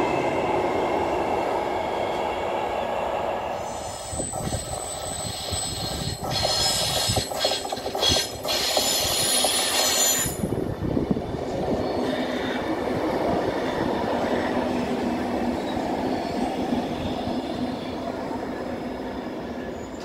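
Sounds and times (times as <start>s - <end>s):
train wheels rumbling on track: 0.0s - 20.0s
high squeal: 2.8s - 10.5s.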